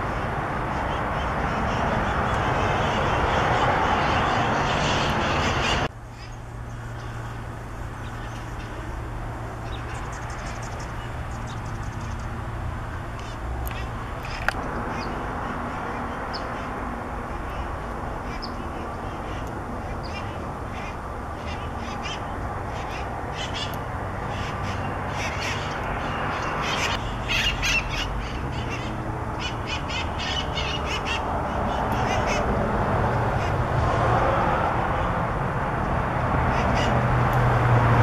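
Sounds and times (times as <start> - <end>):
steady background noise: 0.0 - 38.0
parakeets squawking: 0.1 - 6.4, 13.2 - 16.8, 17.4 - 32.6, 36.5 - 37.0.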